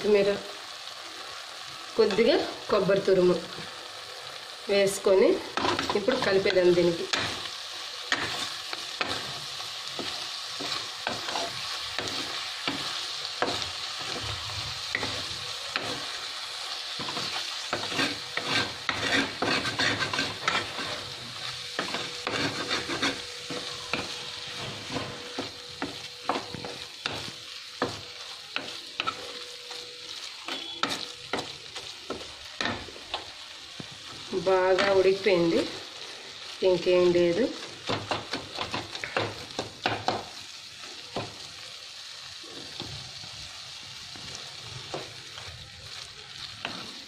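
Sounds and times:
food sizzling in a pan: 0.0 - 47.0
spatula scraping a frying pan: 5.5 - 16.2, 16.9 - 32.9.

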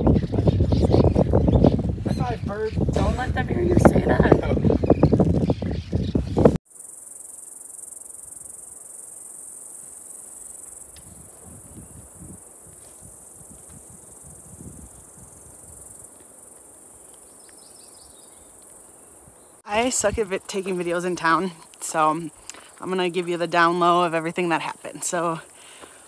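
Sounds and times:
high-pitched insect chorus: 6.7 - 26.0.

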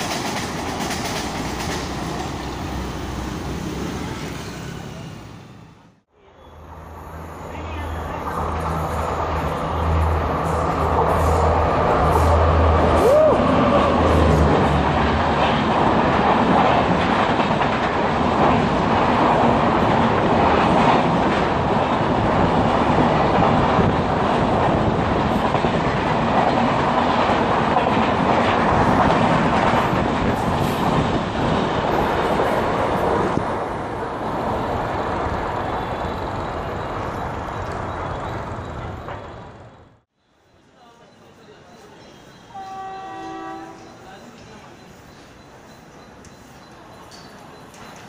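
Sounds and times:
wheels clacking over rail joints: 0.0 - 3.2, 43.2 - 48.0
train rushing past: 0.0 - 40.1.

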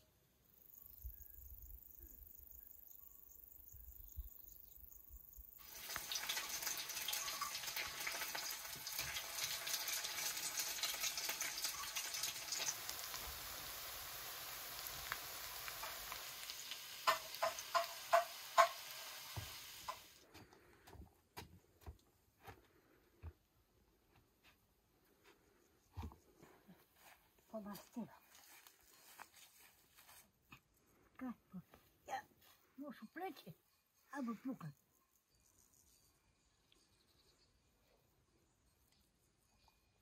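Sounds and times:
patties sizzling in oil: 5.6 - 20.2.

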